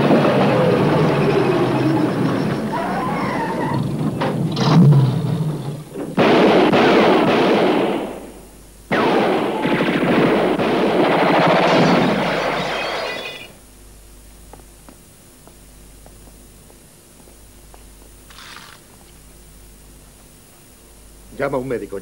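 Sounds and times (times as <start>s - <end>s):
automatic gunfire: 6.2s - 13.3s.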